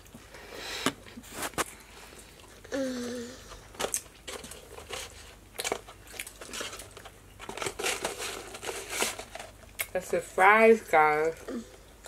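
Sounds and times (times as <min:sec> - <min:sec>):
person chewing ribs: 0:00.0 - 0:07.2.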